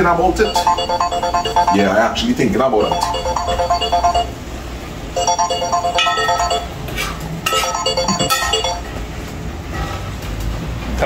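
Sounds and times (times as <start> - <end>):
mobile phone ringtone: 0.4 - 2.2, 2.8 - 4.4, 5.2 - 6.8, 7.5 - 8.9.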